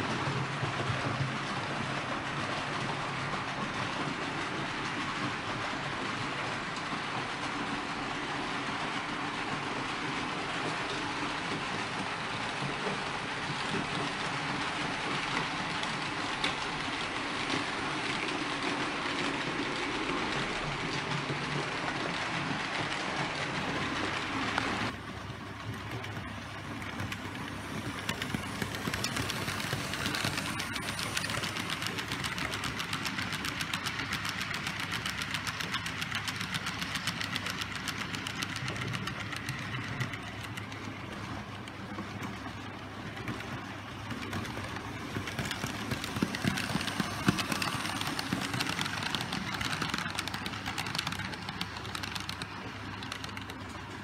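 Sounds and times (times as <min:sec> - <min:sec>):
model train wheels clicking on rails: 0:00.0 - 0:54.0.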